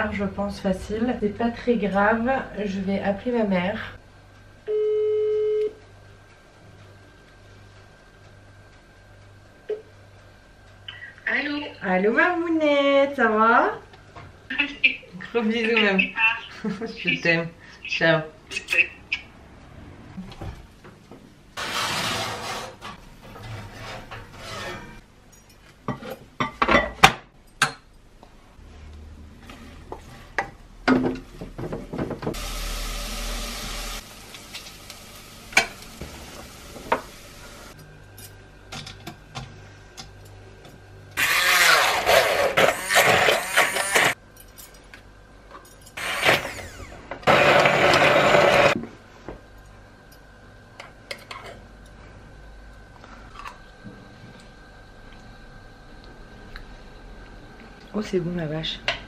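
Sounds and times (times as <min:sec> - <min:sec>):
immersion blender running: 0:32.4 - 0:34.0, 0:41.2 - 0:44.2, 0:46.0 - 0:48.8.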